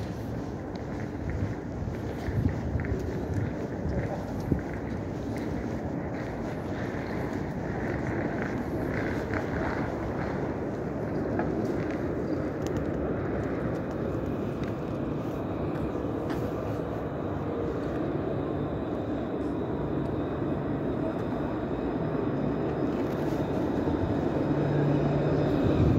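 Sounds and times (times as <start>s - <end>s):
tram rumbling on rails: 0.0s - 25.9s.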